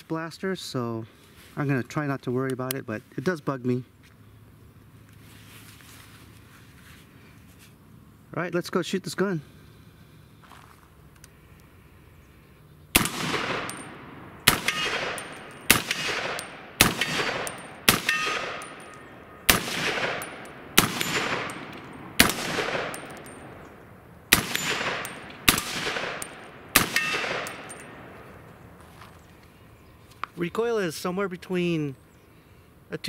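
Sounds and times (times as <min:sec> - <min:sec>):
gunshots echoing: 0:13.0 - 0:28.5.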